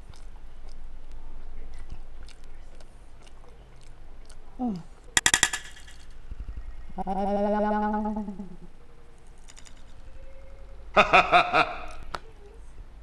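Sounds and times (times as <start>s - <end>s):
soft chewing clicks: 0.0s - 5.2s, 8.0s - 10.9s.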